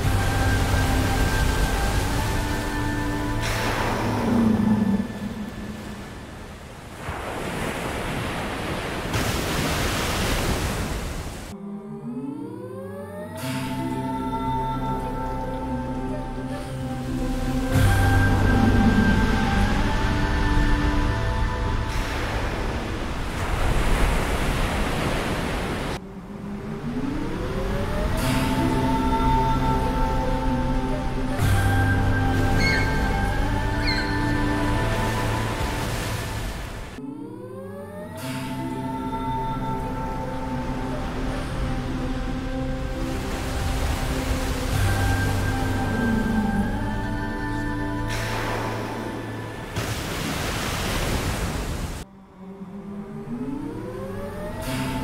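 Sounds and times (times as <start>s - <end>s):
music: 0.0s - 5.6s, 11.6s - 23.1s, 27.5s - 49.8s, 52.3s - 55.0s
sea water rushing and splashing: 0.0s - 11.6s, 13.4s - 52.1s, 53.2s - 55.0s
rising tone: 26.1s - 35.8s.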